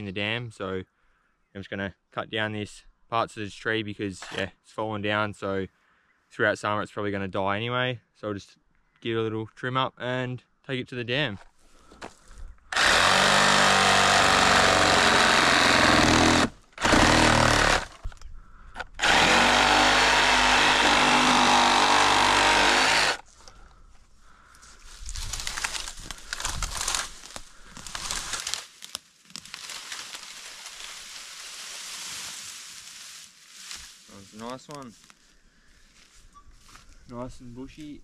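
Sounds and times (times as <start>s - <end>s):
power saw cutting branches: 12.7s - 18.0s, 18.8s - 23.3s, 25.2s - 28.7s
leafy branches rustling: 23.3s - 37.1s.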